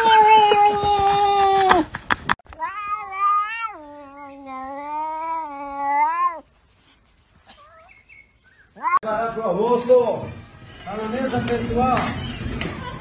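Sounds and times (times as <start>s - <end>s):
cat yowling: 2.6s - 6.5s.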